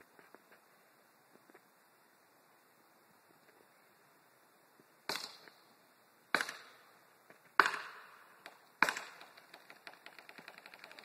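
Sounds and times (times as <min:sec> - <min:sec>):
wood cracking: 0:07.6 - 0:11.0.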